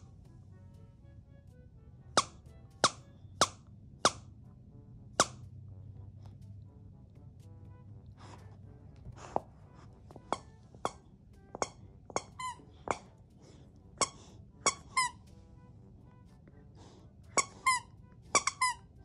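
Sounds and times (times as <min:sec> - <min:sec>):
squeaky toy squeaking: 0:02.1 - 0:04.3, 0:05.2 - 0:05.5, 0:09.1 - 0:15.5, 0:17.3 - 0:19.0.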